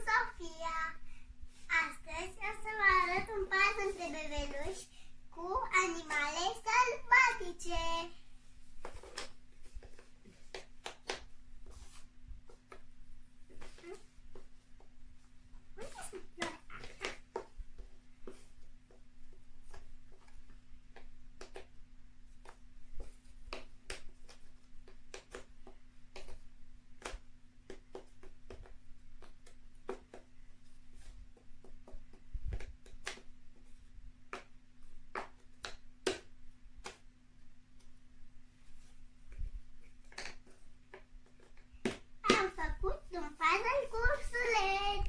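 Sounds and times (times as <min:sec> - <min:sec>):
faint steady hum: 0:00.0 - 0:45.0.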